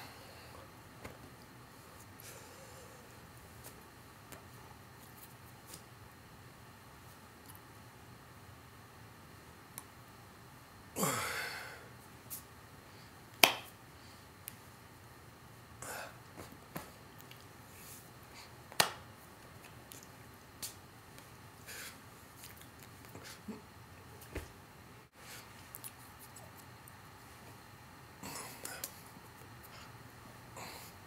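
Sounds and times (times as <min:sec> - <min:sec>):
hands slapping: 0:13.4 - 0:13.8, 0:18.7 - 0:19.0, 0:20.6 - 0:20.8.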